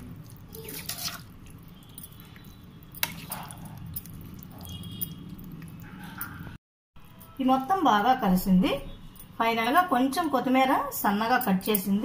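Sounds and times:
wet spoon stirring: 0.0s - 6.5s.

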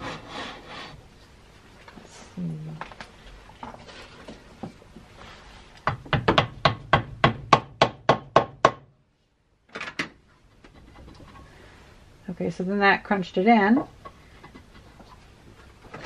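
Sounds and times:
hammer knocking wooden plug: 5.8s - 8.9s.

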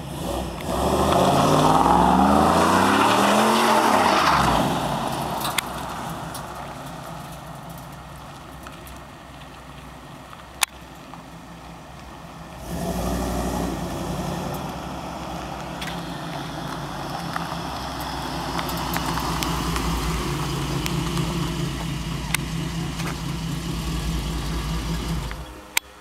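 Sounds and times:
truck engine idling: 13.7s - 26.0s.

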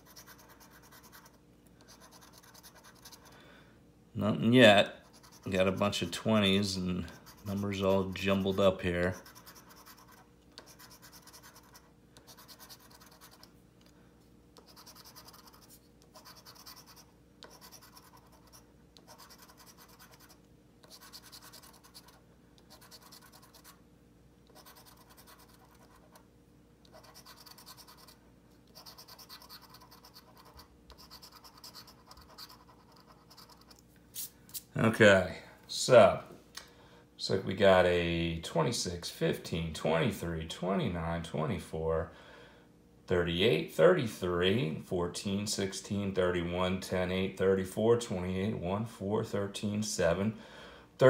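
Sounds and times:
scratch-off ticket scratching: 0.0s - 3.3s, 5.0s - 13.5s, 14.6s - 23.8s, 24.5s - 26.2s, 26.9s - 33.8s.

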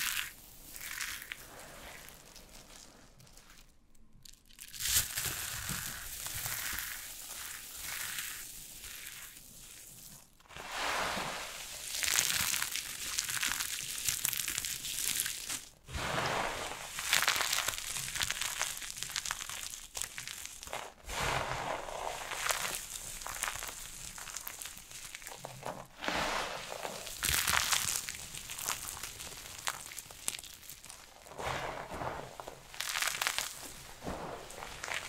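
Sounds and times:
soap being crushed by hand: 17.0s - 35.0s.

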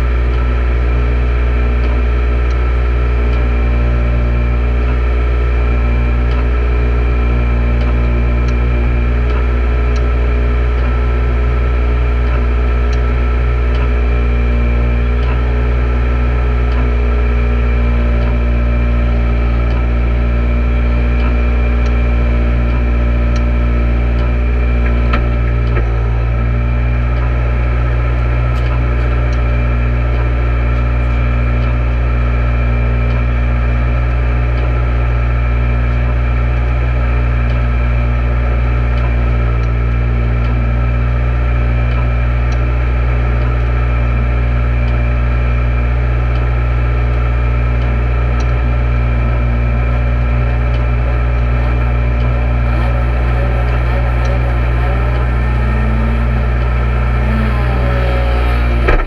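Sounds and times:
car engine idling: 44.2s - 59.0s.

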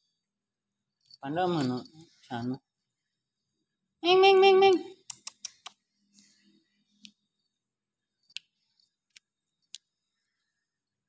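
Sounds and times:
faint sharp clicks: 5.0s - 6.3s.

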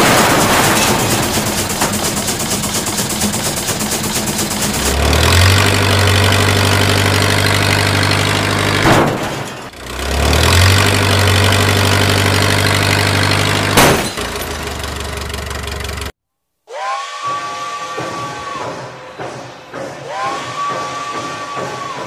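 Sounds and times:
short crash: 0.0s - 3.4s, 8.8s - 9.8s, 13.6s - 14.8s
truck engine revving: 0.0s - 16.1s.

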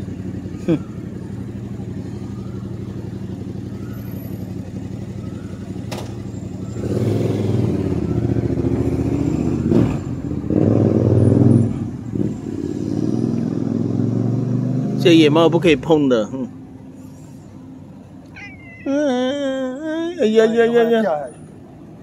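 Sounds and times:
cat purring: 18.4s - 19.8s.

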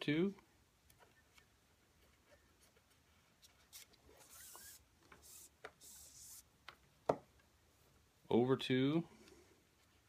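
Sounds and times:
cord rubbing through knot: 0.9s - 6.5s.

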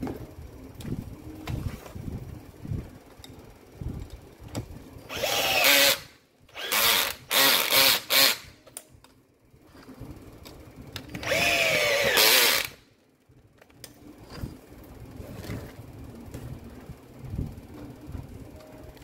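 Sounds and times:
power tool motor bursts: 5.1s - 8.6s, 11.2s - 12.8s.

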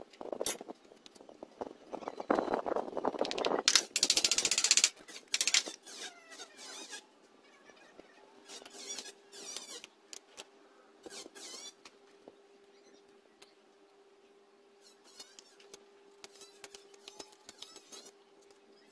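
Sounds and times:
knife scraping bamboo: 14.8s - 15.6s.

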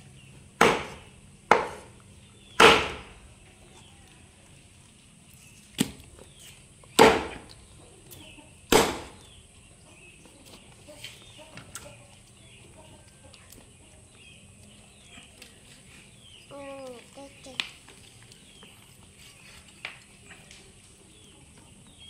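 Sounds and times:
knife chopping on wooden block: 0.6s - 1.9s, 2.6s - 3.1s.

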